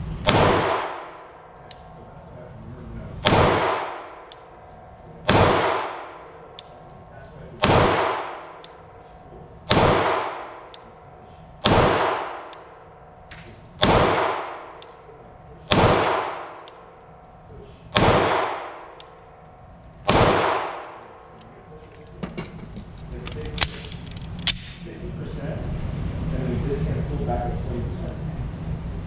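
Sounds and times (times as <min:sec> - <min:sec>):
pistol shots echoing indoors: 0:00.1 - 0:02.2, 0:03.2 - 0:21.8
gun handling clicks: 0:01.2 - 0:02.0, 0:06.0 - 0:09.3, 0:12.5 - 0:12.7, 0:13.3 - 0:14.0, 0:14.7 - 0:15.8, 0:16.5 - 0:17.4, 0:18.6 - 0:20.2, 0:20.8 - 0:24.8.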